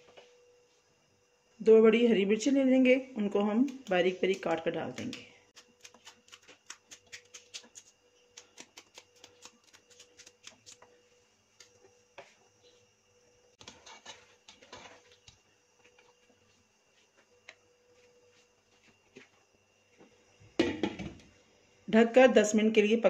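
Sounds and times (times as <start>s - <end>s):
spoon scraping a metal pot: 13.6s - 15.1s.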